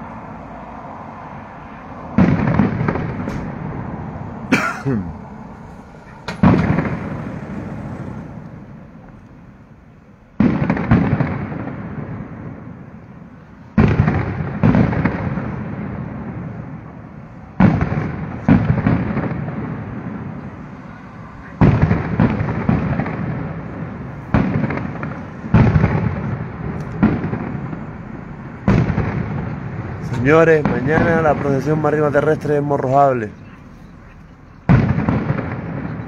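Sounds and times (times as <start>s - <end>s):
firework shells bursting: 5.4s - 9.4s.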